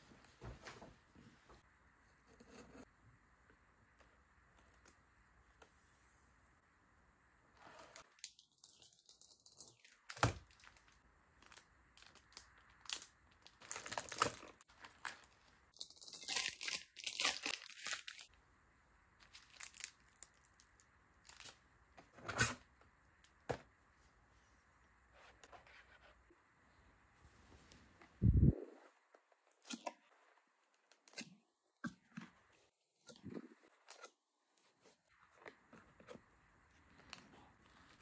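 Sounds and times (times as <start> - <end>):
plastic packaging crinkling and tearing: 8.0 - 18.3, 19.2 - 21.6.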